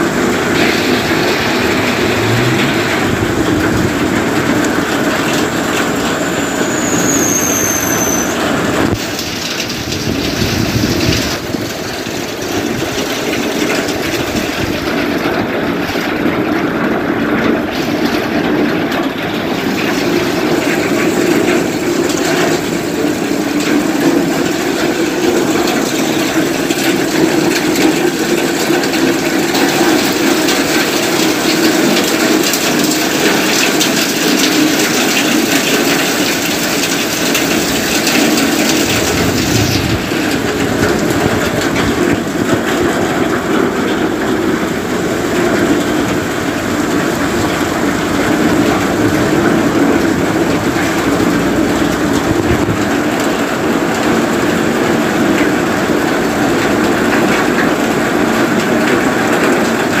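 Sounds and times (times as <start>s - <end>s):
low rumble: 0.0s - 6.0s
heavy rain on a wet street: 0.0s - 60.0s.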